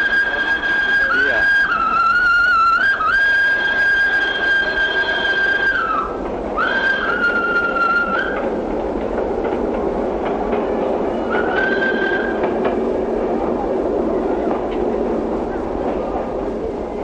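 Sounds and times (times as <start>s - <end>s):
steam whistle blasts: 0.0s - 8.5s, 11.1s - 12.5s
tram rumbling on rails: 0.0s - 17.0s.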